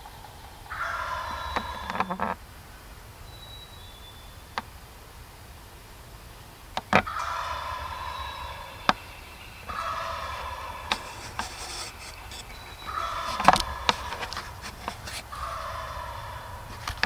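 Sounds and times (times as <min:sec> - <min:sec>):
turkey gobbling: 0:00.0 - 0:02.4, 0:06.8 - 0:17.0.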